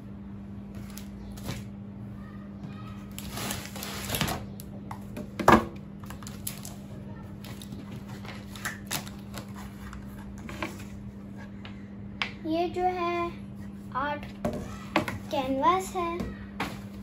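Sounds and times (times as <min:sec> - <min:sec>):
steady low hum: 0:00.0 - 0:17.0
paper and packaging rustling: 0:06.0 - 0:11.0.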